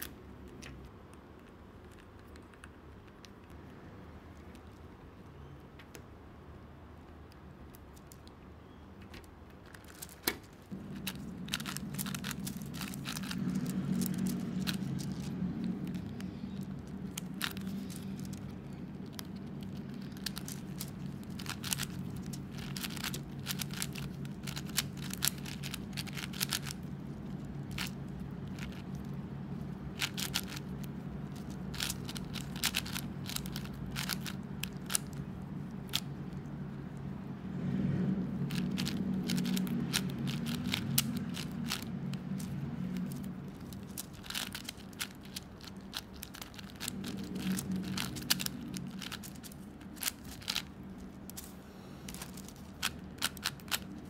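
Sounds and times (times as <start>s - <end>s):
low hum: 10.6s - 54.0s
plastic puzzle cube clicking: 31.4s - 35.1s, 38.6s - 50.7s.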